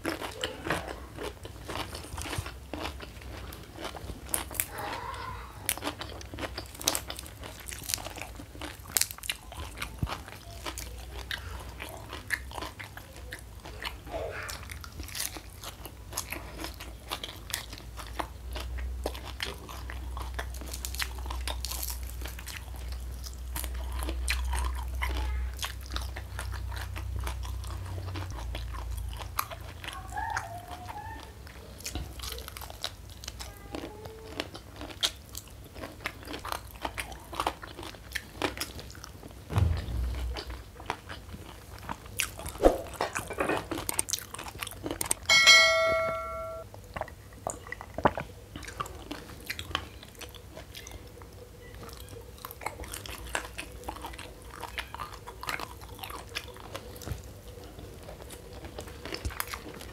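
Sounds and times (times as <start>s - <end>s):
crunchy chewing: 0.0s - 39.8s, 46.8s - 59.9s
low rumble: 39.5s - 41.0s.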